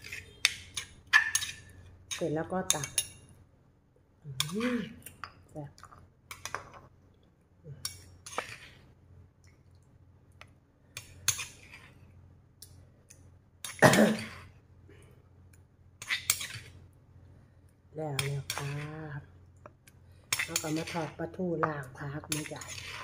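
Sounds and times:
metal spoon clinking on stone and glass: 20.3 - 21.1.

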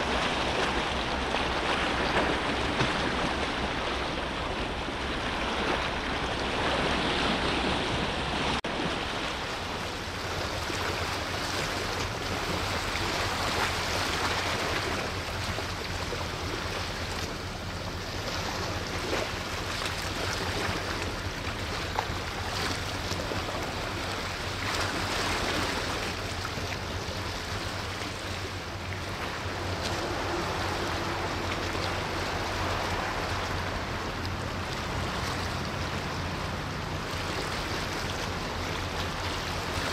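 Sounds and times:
low steady hum: 0.0 - 39.9
sea water rushing: 0.0 - 39.9.

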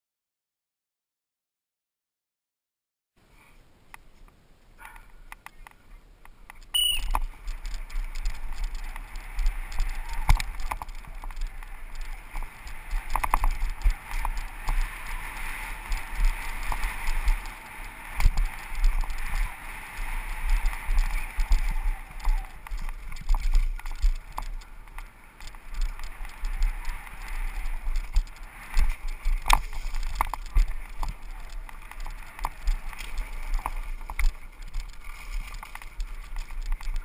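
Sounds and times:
tyres on dirt: 3.5 - 37.0
scattered clicks: 3.9 - 37.0
bike rattling: 6.5 - 37.0
brief high tone: 6.8 - 7.2
wind rushing on microphone: 6.8 - 37.0.

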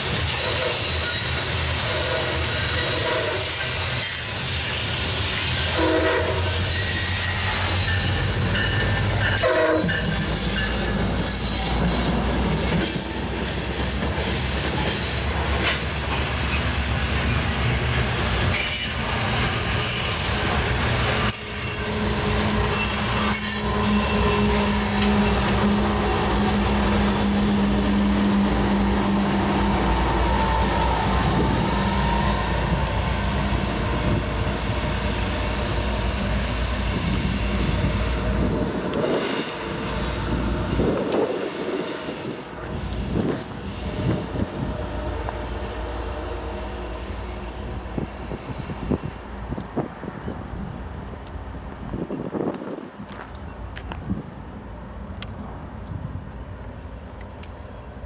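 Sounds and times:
train wheels squealing and clacking: 0.0 - 46.0.

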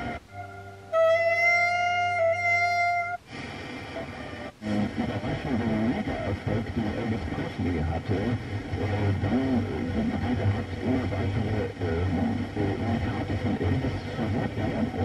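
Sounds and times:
radio static hiss: 0.0 - 1.0, 1.8 - 15.0
classical music on radio: 0.0 - 15.0
voice on radio: 3.9 - 15.0.

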